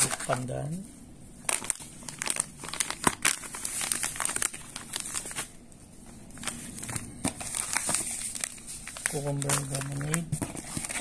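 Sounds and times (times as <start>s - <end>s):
plastic pouches crinkling: 0.0s - 0.8s, 1.4s - 5.6s, 6.3s - 11.0s.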